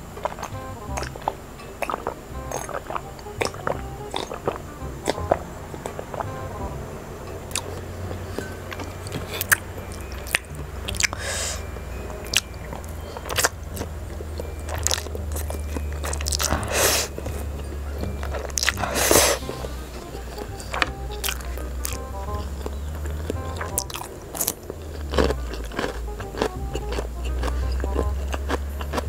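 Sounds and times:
wet smacking and chewing: 0:00.0 - 0:06.4, 0:07.5 - 0:29.0
soft background music: 0:00.0 - 0:29.0
slurping noodles: 0:09.1 - 0:11.7, 0:18.3 - 0:22.8.

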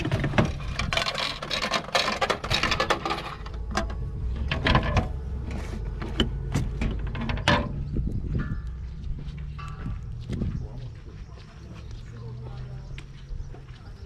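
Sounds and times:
vending machine rattling and clicking: 0:00.0 - 0:05.2.

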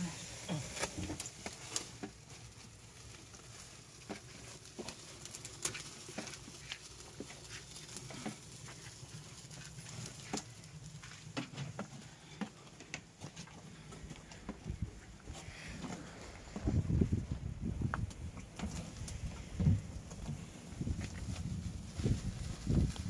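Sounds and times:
twigs crackling in fire: 0:00.0 - 0:23.0.

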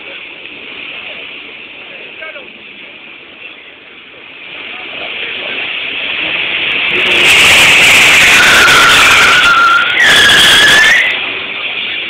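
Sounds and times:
tyres squealing: 0:08.1 - 0:11.2.

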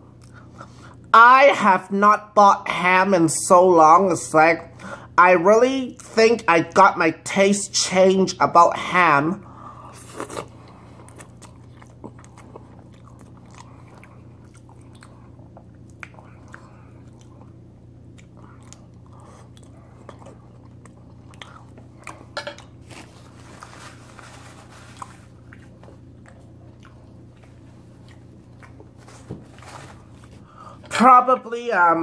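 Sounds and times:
steady low hum: 0:00.0 - 0:32.0
person chewing and slurping: 0:09.6 - 0:30.8.

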